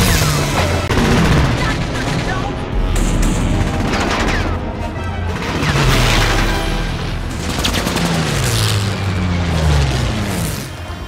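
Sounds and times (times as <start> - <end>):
machine guns firing: 0.0 - 4.7
orchestral score: 2.2 - 11.0
plane engine: 2.5 - 11.0.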